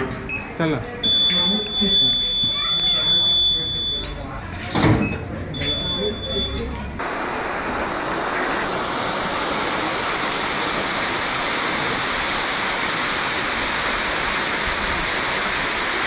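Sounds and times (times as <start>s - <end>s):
fountain water splashing: 7.0s - 16.0s.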